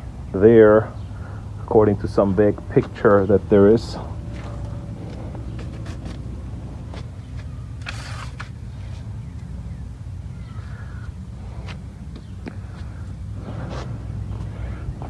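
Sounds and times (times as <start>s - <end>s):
low mechanical rumble: 0.0s - 15.0s.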